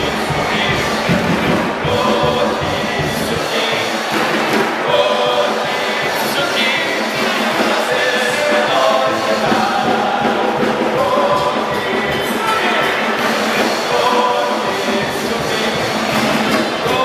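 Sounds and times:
loud music: 0.0 - 17.0
many voices singing together: 0.0 - 17.0.

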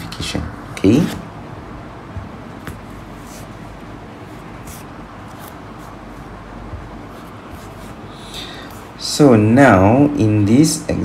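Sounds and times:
room noise hiss: 0.0 - 11.0
faint short scratching: 3.1 - 3.6, 4.2 - 6.4, 7.0 - 9.0.

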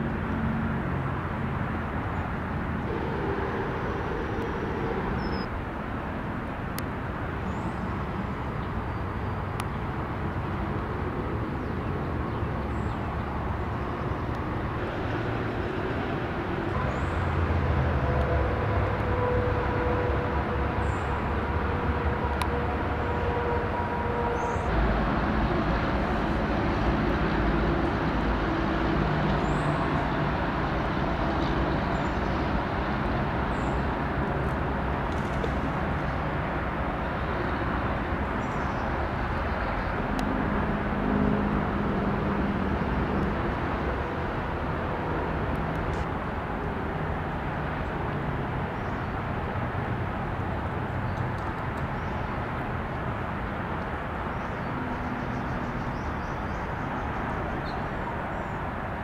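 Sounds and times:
road traffic rumble: 0.0 - 59.0
birds chirping: 2.9 - 5.6.

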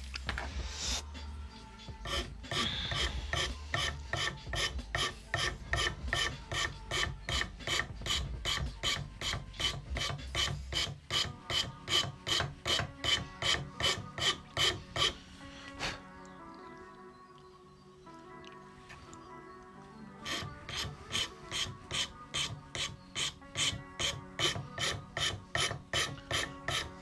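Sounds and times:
file rasping on pipe stem: 1.8 - 15.5, 20.2 - 27.0.

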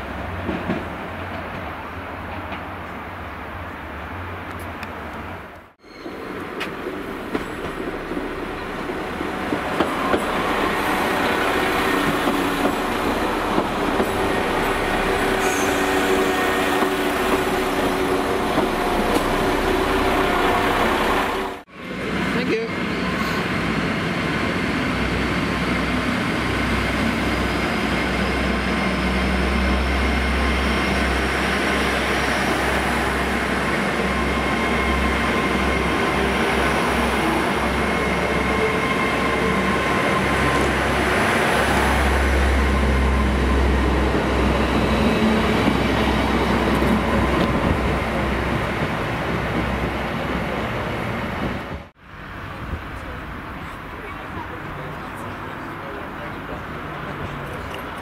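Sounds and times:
train wheels rolling on rails: 4.4 - 22.3, 23.0 - 58.0.

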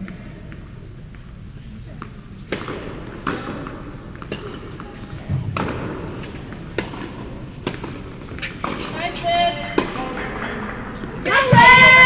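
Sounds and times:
tennis ball bouncing on hard court: 2.0 - 10.4.

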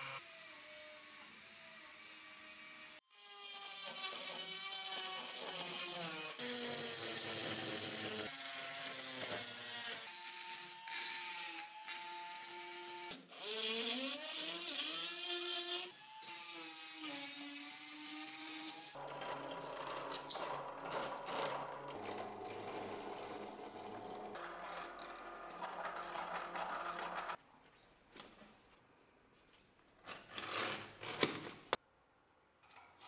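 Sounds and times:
rotary tool grinding metal: 1.8 - 27.4
drill press cutting metal: 19.0 - 27.4.

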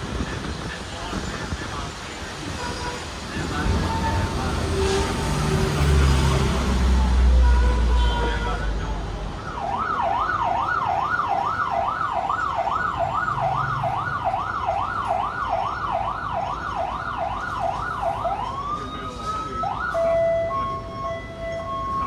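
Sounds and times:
low traffic rumble: 0.0 - 22.0
siren yelping: 9.4 - 22.0.

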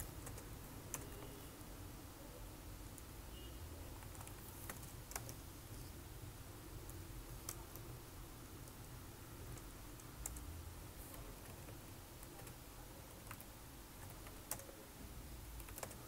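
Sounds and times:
low steady background hum: 0.0 - 16.0
keyboard keystrokes: 4.0 - 5.4, 15.6 - 16.0.

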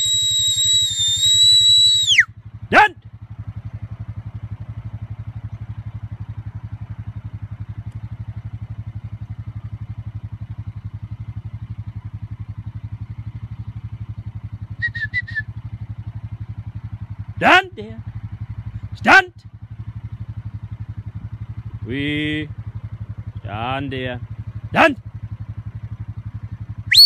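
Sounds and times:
high whistle pips: 0.0 - 2.3, 14.8 - 15.5
engine idling: 0.0 - 27.0.

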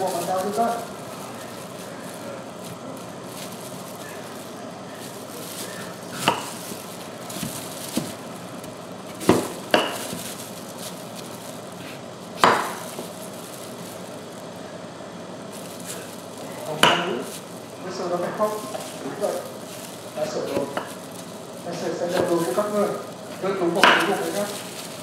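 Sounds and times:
steady low hiss: 0.0 - 25.0
knife chopping on wooden board: 6.1 - 6.6, 9.2 - 10.2, 11.8 - 12.9, 23.8 - 24.1.

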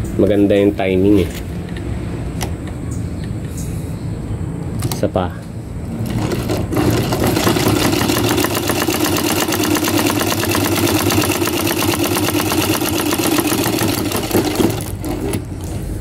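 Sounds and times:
sewing machine stitching: 6.0 - 15.8.

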